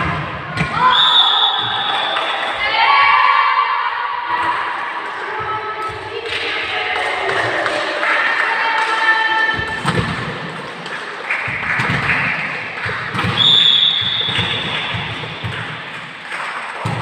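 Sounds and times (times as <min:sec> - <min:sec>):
ball bouncing on court: 0:05.3 - 0:06.5, 0:09.5 - 0:17.0
volleyball being hit: 0:11.4 - 0:17.0.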